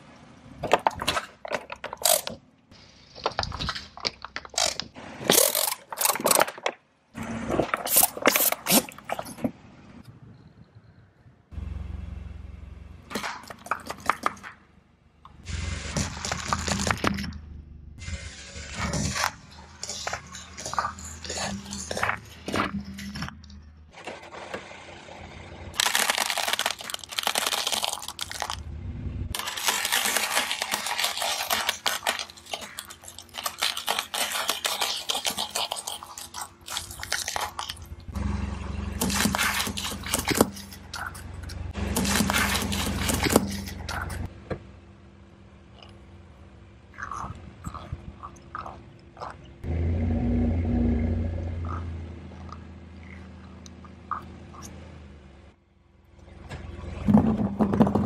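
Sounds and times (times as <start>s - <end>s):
taco shells crunching under tyre: 0.6s - 6.8s, 15.9s - 17.4s, 18.7s - 23.6s, 25.7s - 28.7s, 29.3s - 38.2s, 38.8s - 44.3s, 46.9s - 49.4s
low car rumble: 9.4s - 25.9s, 26.5s - 29.4s, 37.7s - 58.0s.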